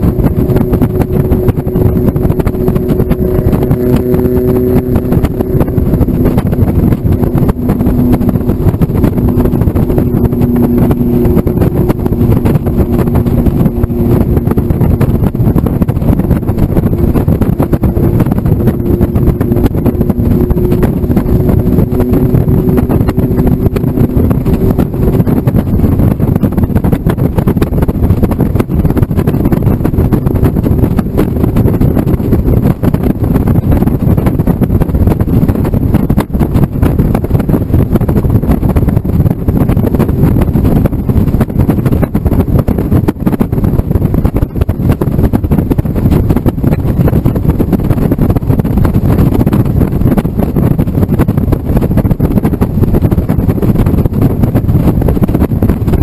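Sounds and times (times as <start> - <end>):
road noise: 0.0 - 44.2
car engine hum: 0.0 - 56.0
wind buffeting microphone: 0.0 - 56.0.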